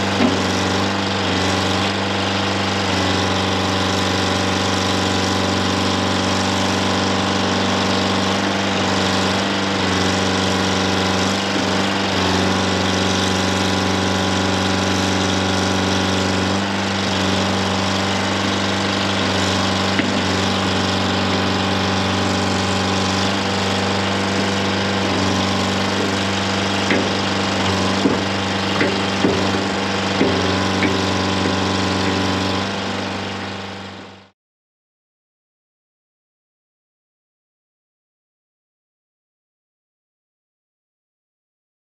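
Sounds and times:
backhoe digging: 0:00.0 - 0:34.3
diesel engine running: 0:00.0 - 0:34.3.

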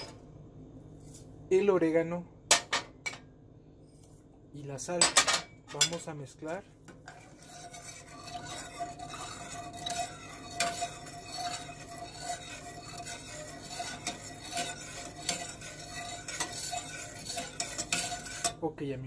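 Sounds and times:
water swishing in pot: 0:07.0 - 0:18.6.

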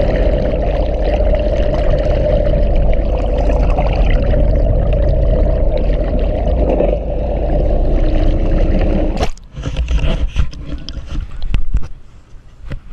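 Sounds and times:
water dripping: 0:00.0 - 0:09.3
underwater rush of water: 0:00.0 - 0:11.8
water splashing: 0:00.0 - 0:11.8.

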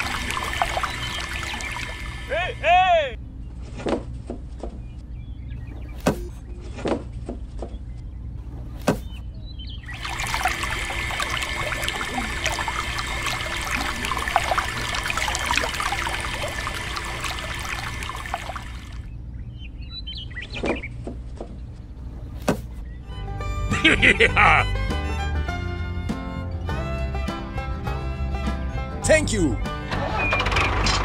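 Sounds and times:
water pouring into clay pot: 0:00.0 - 0:02.3, 0:09.9 - 0:19.0.

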